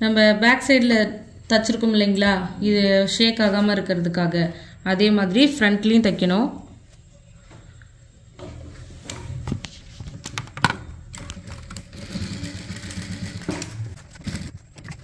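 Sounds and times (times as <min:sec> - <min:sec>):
sewing machine stitching: 0:11.2 - 0:15.0.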